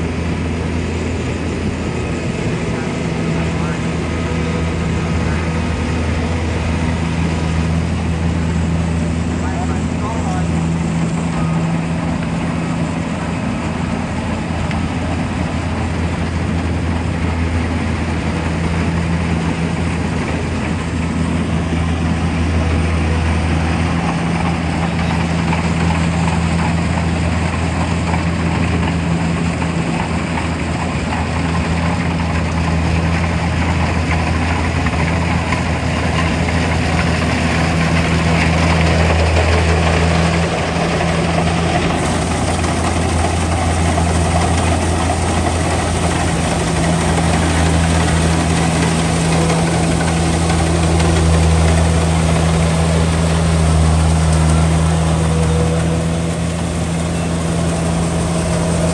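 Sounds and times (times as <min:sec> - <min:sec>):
combine harvester diesel engine: 0:00.0 - 0:58.9.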